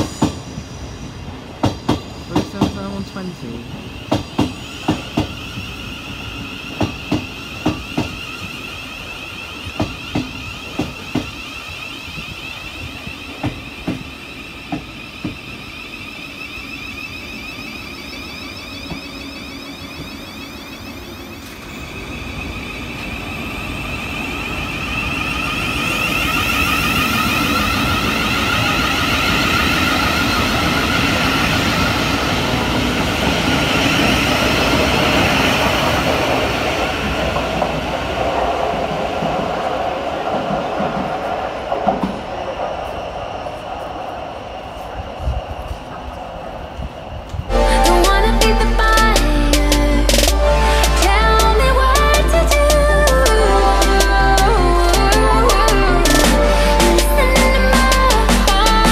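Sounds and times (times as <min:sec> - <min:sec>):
electric train motors whining: 0:00.0 - 0:39.6, 0:41.8 - 0:58.9
train wheels knocking over rail joints: 0:01.6 - 0:03.0, 0:06.7 - 0:08.4, 0:09.6 - 0:11.5.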